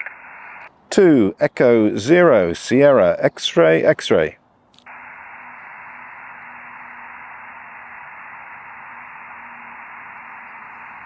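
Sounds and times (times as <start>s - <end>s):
radio receiver hiss: 0.0s - 0.7s, 4.8s - 11.0s.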